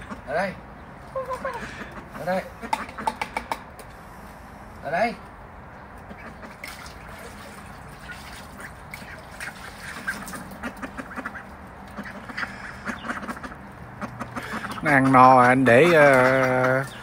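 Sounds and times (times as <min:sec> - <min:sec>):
ducks quacking softly: 0:00.0 - 0:03.2, 0:06.0 - 0:17.0
duck bills clicking: 0:02.6 - 0:03.9, 0:09.9 - 0:17.0.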